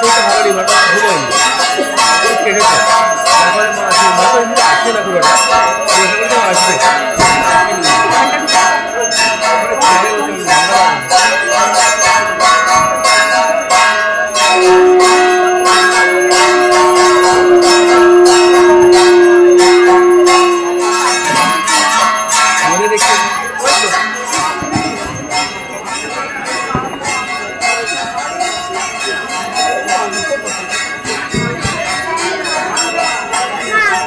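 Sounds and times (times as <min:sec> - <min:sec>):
bells ringing rapidly: 0:00.0 - 0:34.0
conch shell blown: 0:14.4 - 0:22.0.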